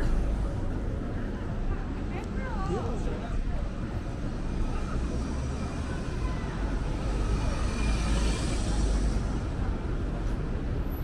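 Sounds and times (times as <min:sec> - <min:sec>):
street traffic noise: 0:00.0 - 0:11.0
car driving past: 0:05.2 - 0:09.7.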